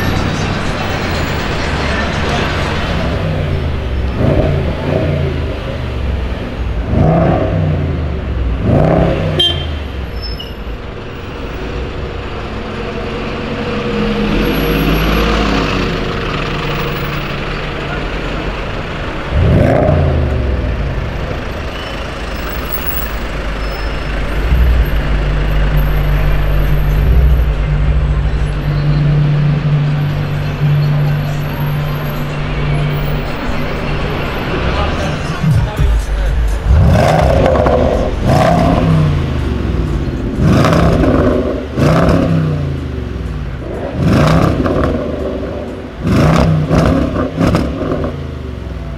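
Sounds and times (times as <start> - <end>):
car engine revving: 0.0 - 48.9
street traffic: 0.0 - 48.9
low exhaust drone: 17.7 - 48.9.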